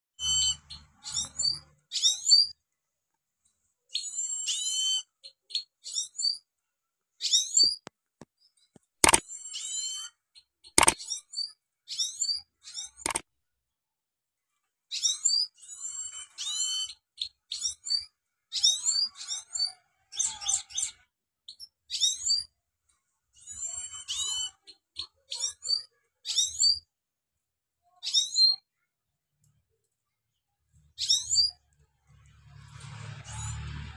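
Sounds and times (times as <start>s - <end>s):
finch twittering song: 0.2s - 2.6s, 31.0s - 31.6s.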